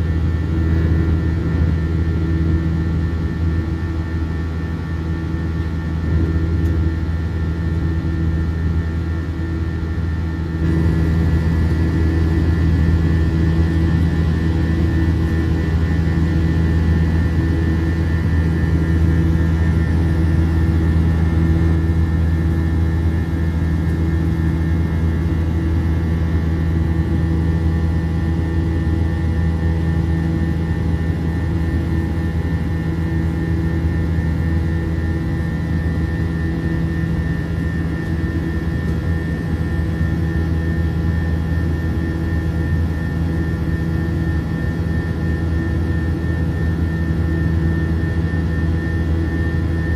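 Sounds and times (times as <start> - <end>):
high whine: 0.0 - 29.1
jet engine drone: 0.0 - 49.9.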